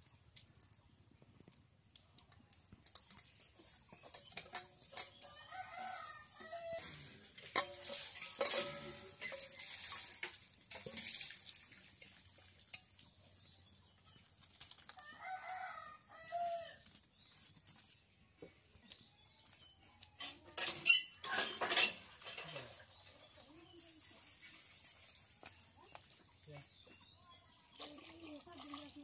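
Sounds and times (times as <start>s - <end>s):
metal pot scraping clay pot: 2.9s - 11.7s, 20.2s - 23.0s
ringing metal clanks: 7.6s - 9.6s, 20.2s - 22.7s.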